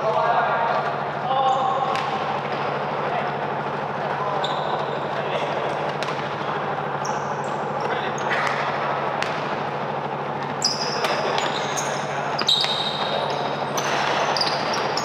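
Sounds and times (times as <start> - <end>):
steady background noise: 0.0 - 15.0
sneaker squeaks: 1.3 - 15.0
ball bouncing on court: 1.8 - 2.7, 5.8 - 7.2, 7.8 - 9.8, 10.4 - 15.0.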